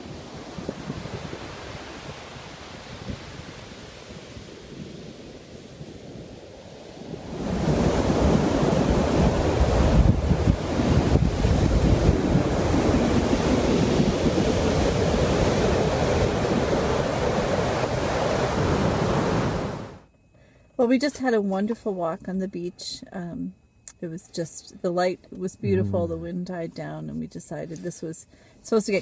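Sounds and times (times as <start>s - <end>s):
wind rumbling on microphone: 0.0s - 19.9s
ocean surf on beach: 0.0s - 20.0s.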